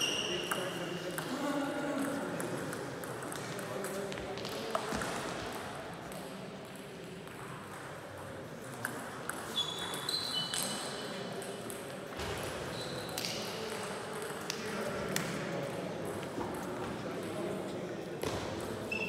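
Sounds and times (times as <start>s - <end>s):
shoe squeaks: 0.0s - 0.5s, 9.5s - 10.8s, 12.7s - 13.1s
reverberant clatter of other games: 0.3s - 18.9s.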